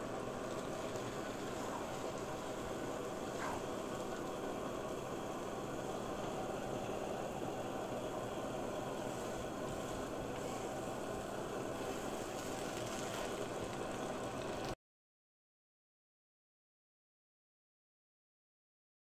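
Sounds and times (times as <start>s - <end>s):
faint stove hum: 0.0s - 14.8s
noodles frying with hiss: 0.0s - 14.8s.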